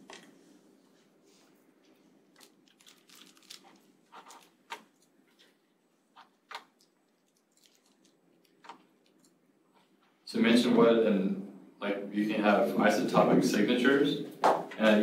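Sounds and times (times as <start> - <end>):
faint room hum: 0.0 - 15.0.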